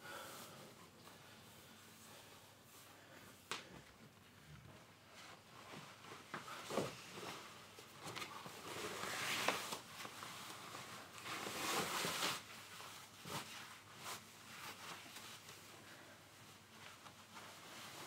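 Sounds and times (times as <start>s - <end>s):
clothes rustling: 0.1s - 18.0s.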